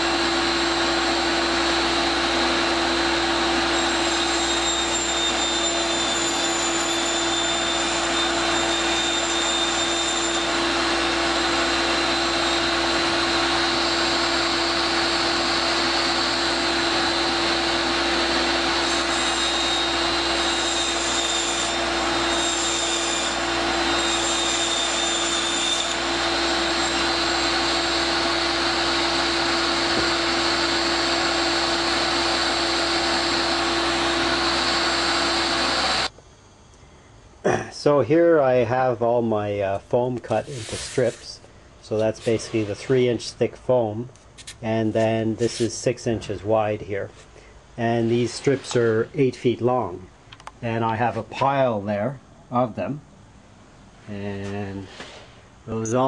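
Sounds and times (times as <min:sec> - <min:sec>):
fan motor whirring: 0:00.0 - 0:36.6.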